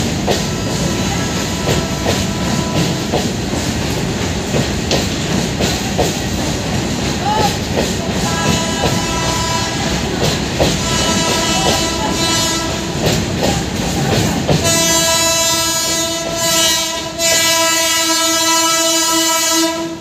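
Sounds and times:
train wheels clacking over rail joints: 0.0 - 20.0
train horn blast: 0.4 - 3.3, 8.1 - 13.2, 14.6 - 20.0.

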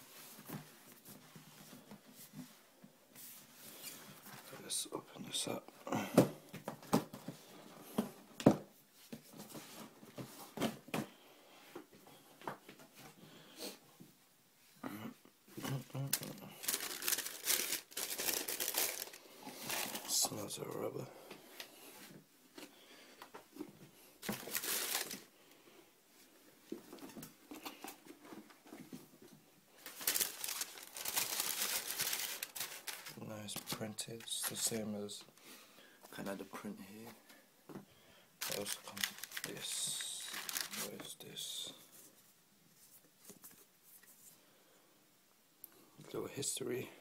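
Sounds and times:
tissue paper rustling: 16.1 - 20.2, 24.2 - 25.3, 29.8 - 34.7, 38.4 - 41.2.

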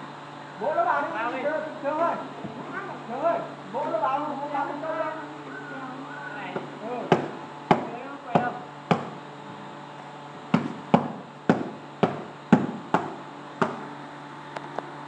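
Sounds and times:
boxes knocking and thudding: 7.1 - 9.2, 10.5 - 13.8.

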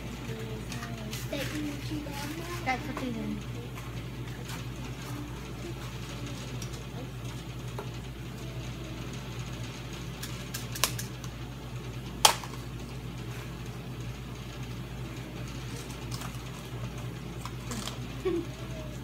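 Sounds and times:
steady low hum: 0.0 - 19.0
utensils clicking and tapping: 0.3 - 7.0, 10.2 - 11.4.

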